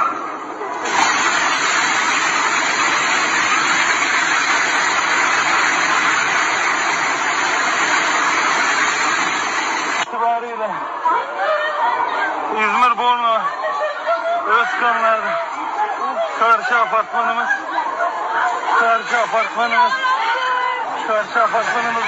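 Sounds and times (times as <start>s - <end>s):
building collapsing debris rush: 0.9s - 10.0s.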